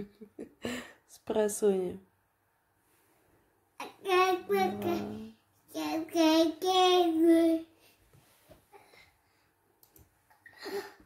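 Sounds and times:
baby sing-song vocalizing: 3.8 - 6.2.

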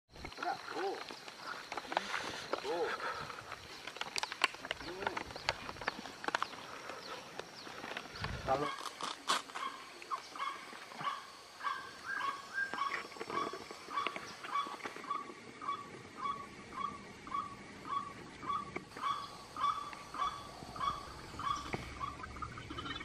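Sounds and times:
waterhen calling: 10.0 - 23.0.

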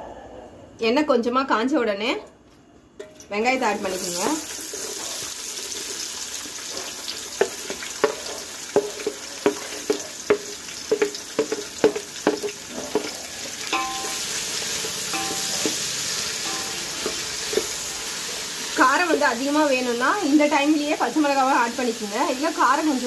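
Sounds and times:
shallots sizzling in oil: 3.2 - 23.0
spatula knocking against pan: 7.4 - 17.8.

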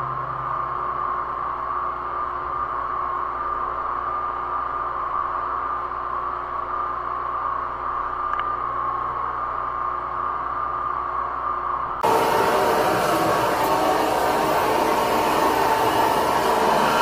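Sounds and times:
drain jetter hissing and whining: 12.0 - 17.0.

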